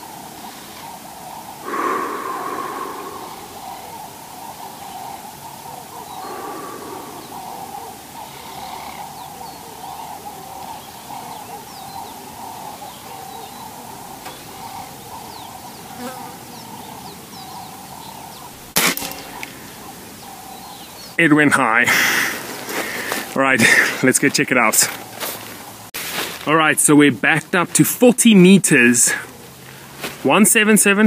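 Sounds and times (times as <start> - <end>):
steady wavering buzz: 1.6 - 8.7.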